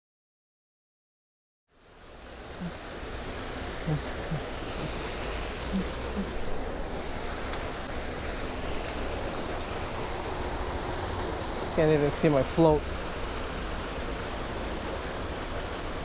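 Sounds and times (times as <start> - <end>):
creek water rushing: 1.8 - 16.0.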